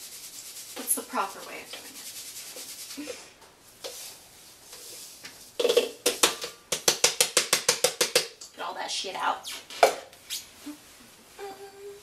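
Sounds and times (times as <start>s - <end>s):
measuring cup rapping on bowl: 5.6s - 8.5s.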